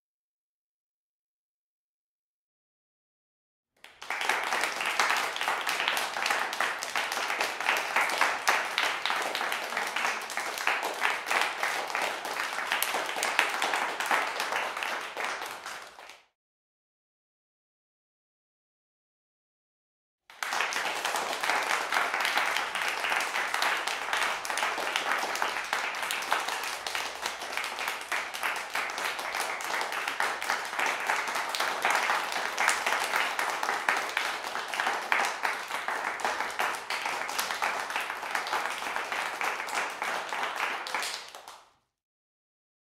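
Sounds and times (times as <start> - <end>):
applause: 3.8 - 16.4, 20.3 - 41.9.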